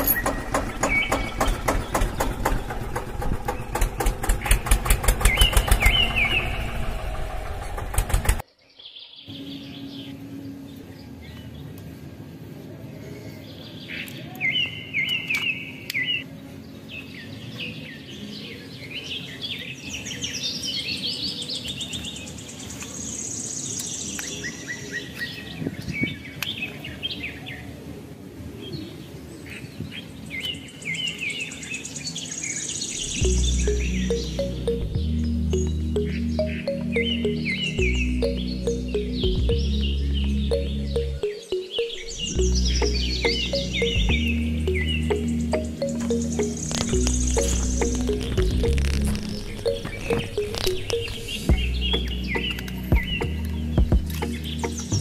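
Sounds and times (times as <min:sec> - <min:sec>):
birds chirping: 0:00.0 - 0:12.0, 0:28.6 - 0:55.0.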